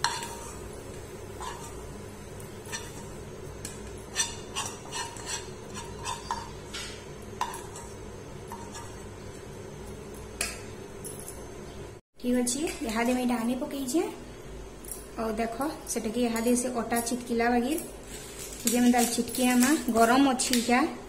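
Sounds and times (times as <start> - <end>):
metal spoon scraping a pan: 0.0 - 0.7, 1.3 - 9.1.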